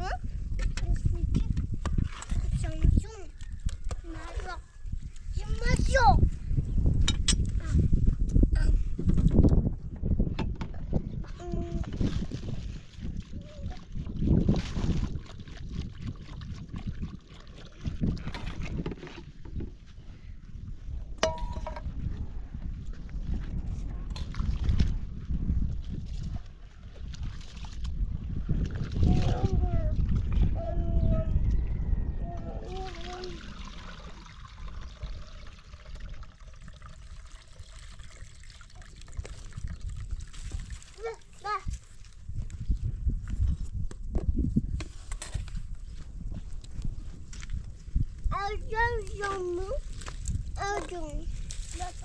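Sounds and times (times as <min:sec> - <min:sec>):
wind rumbling on microphone: 0:00.0 - 0:52.0
metal bowl and utensils clinking: 0:21.2 - 0:21.9
liquid pouring into bowl: 0:32.7 - 0:41.3.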